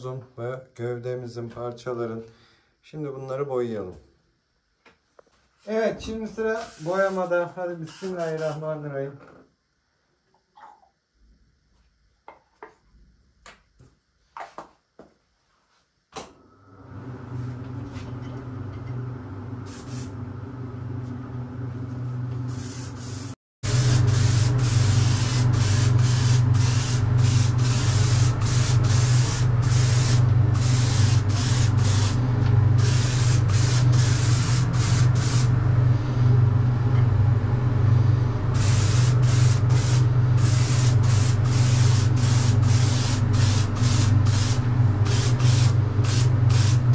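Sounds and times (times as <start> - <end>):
paint spray gun hissing: 6.5 - 8.6, 19.7 - 20.1, 22.5 - 35.5, 38.5 - 46.9
steady low hum: 23.7 - 46.9.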